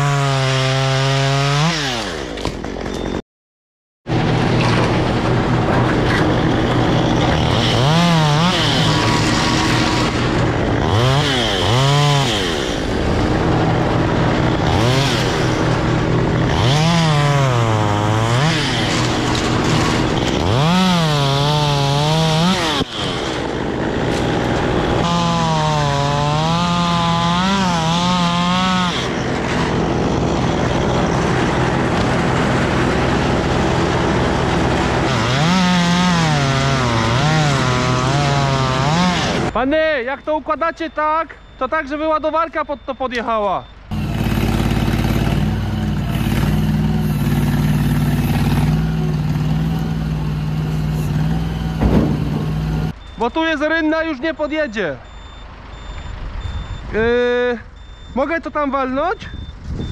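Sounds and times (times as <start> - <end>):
chainsaw revving: 0.0 - 2.4, 4.1 - 39.6, 43.9 - 53.0
steady engine hum: 4.1 - 36.9, 43.6 - 53.2.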